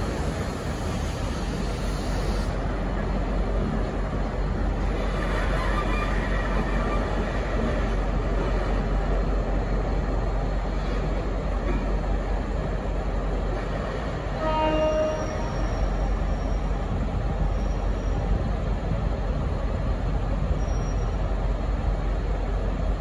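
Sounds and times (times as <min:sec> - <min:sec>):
diesel locomotive running: 0:00.0 - 0:23.0
faint high-pitched wheel squeal: 0:05.3 - 0:07.3, 0:14.6 - 0:16.8, 0:20.6 - 0:21.2
short train horn note: 0:14.4 - 0:15.9.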